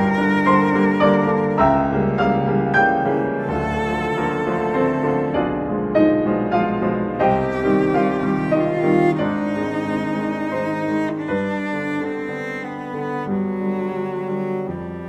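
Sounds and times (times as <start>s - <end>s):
bowed cello melody: 0.0s - 15.0s
piano notes: 0.0s - 15.0s.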